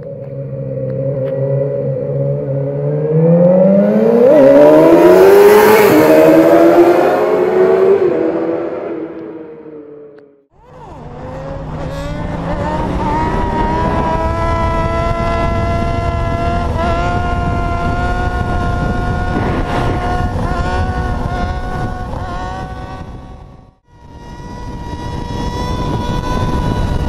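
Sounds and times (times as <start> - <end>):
motorcycle engine revving: 0.0 - 27.0
wind rush on microphone: 10.7 - 27.0.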